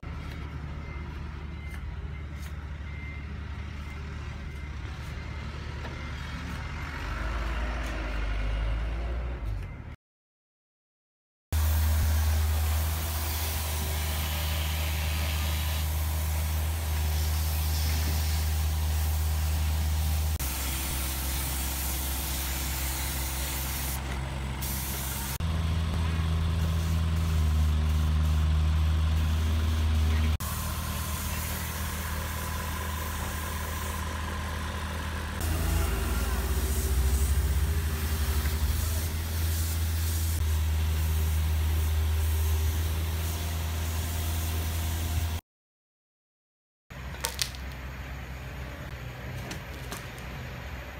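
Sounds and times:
spray gun hissing: 11.6 - 25.4, 30.4 - 34.2, 35.5 - 44.0
air compressor humming: 11.6 - 40.5.

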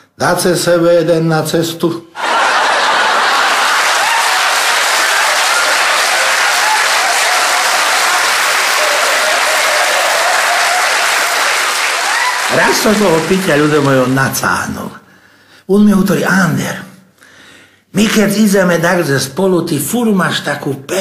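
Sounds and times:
audience applauding: 2.3 - 14.5.

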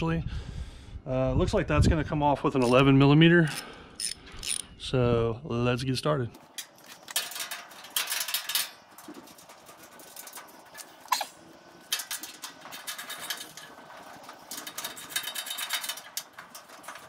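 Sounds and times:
ratchet wrench clicking: 3.5 - 4.6.

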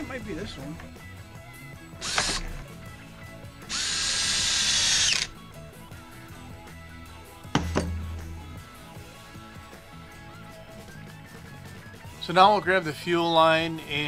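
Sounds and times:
cordless drill running: 2.0 - 2.8, 3.6 - 5.3
drill clunking on bench: 2.0 - 2.8, 7.6 - 8.4
knock: 7.6 - 8.6.

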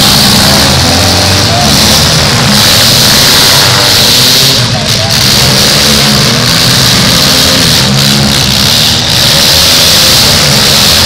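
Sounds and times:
car engines revving: 0.0 - 11.0.

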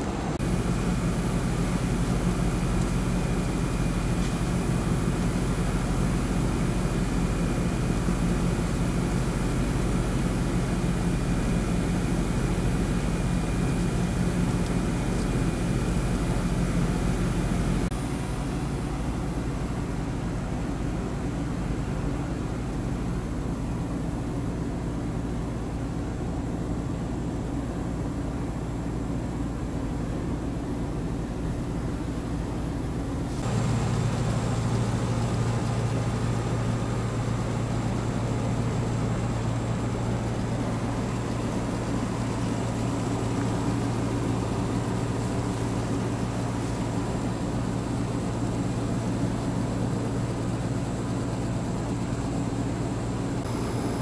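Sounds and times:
air conditioner unit humming: 0.0 - 54.0
faint high whine: 53.4 - 54.0.

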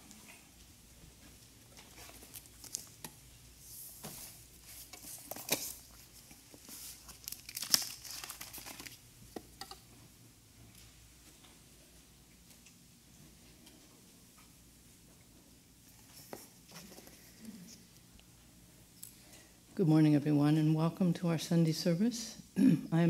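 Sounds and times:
binder pages rustling: 4.0 - 9.0.

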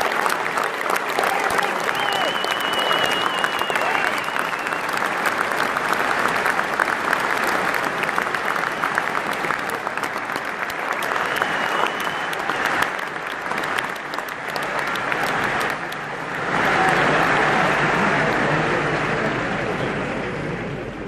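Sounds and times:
crowd applauding: 0.0 - 21.0
short whistle: 2.0 - 4.8, 11.2 - 12.6.

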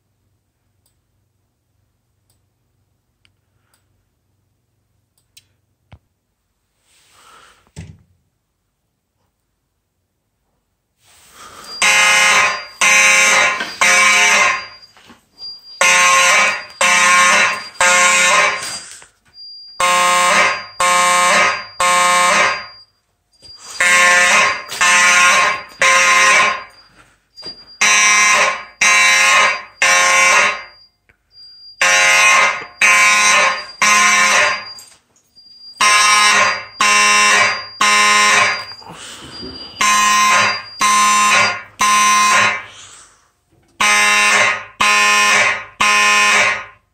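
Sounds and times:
fire alarm horns blasting: 11.3 - 43.0, 43.8 - 46.9.

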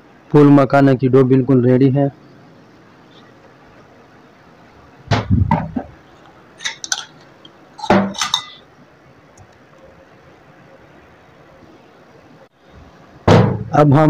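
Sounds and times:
spoon clinking: 6.6 - 8.6.

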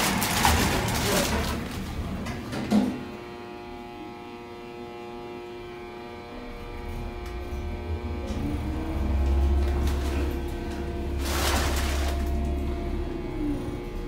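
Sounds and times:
electric hum of lift drive: 0.0 - 14.0
low rumble: 6.3 - 14.0.

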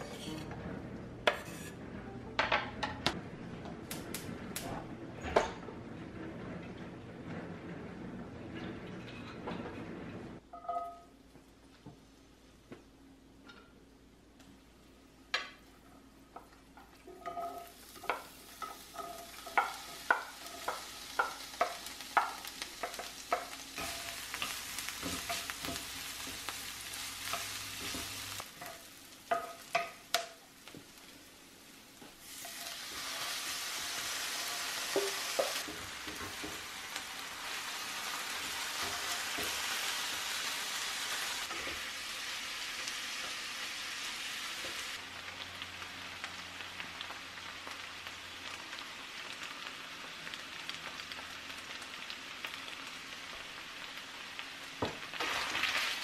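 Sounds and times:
ground beef frying: 15.4 - 56.0
garlic and onion sizzling in oil: 15.5 - 56.0
wooden spatula knocking on skillet: 17.2 - 26.4, 27.3 - 30.4.

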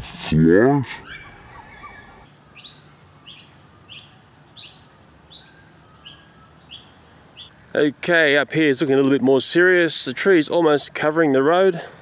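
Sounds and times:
small bird chirping: 1.0 - 7.7.

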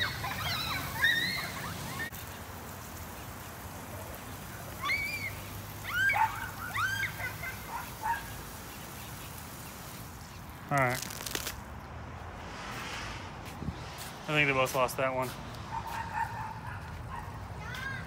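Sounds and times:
children squealing and shrieking: 0.0 - 2.1, 4.6 - 8.2, 15.8 - 18.0
water spray hissing: 0.0 - 18.0.

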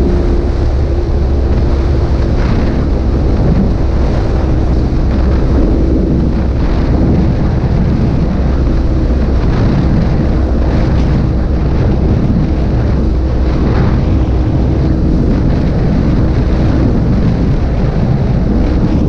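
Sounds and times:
motorcycle engine cruising: 0.0 - 16.4
wind buffeting microphone: 0.0 - 19.0.

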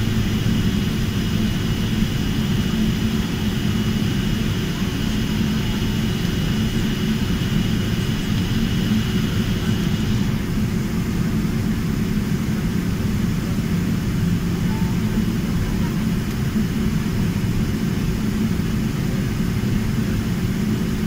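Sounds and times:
faint high whine: 0.0 - 12.3
jet engines low rumble: 0.0 - 21.0.

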